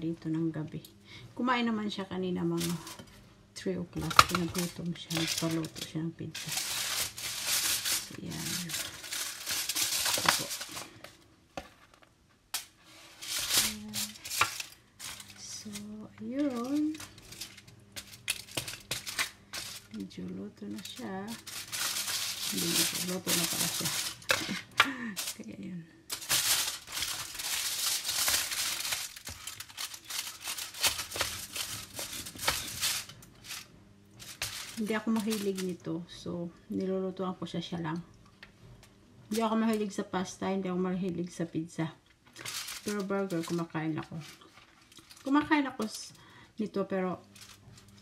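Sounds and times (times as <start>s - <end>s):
aluminium foil crinkling: 2.4s - 3.2s, 3.9s - 35.9s, 39.3s - 39.9s, 42.2s - 48.0s
metal utensil scraping baking tray: 4.0s - 10.8s, 12.8s - 19.8s, 20.7s - 25.4s.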